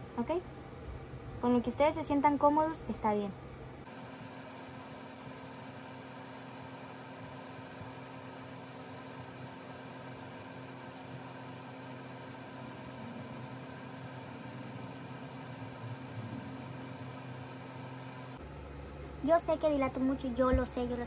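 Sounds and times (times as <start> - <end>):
machine hum with hiss: 3.8 - 19.2.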